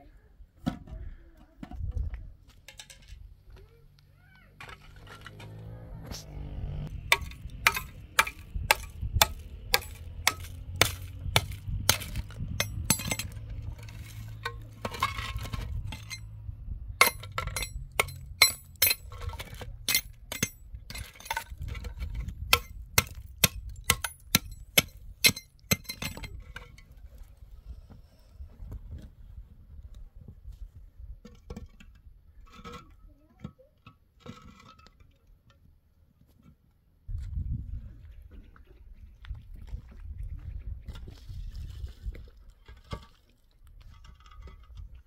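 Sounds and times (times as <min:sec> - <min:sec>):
low steady rumble: 0:02.0 - 0:28.5
hammer striking concrete block: 0:07.0 - 0:13.4, 0:17.0 - 0:19.2, 0:22.5 - 0:26.3.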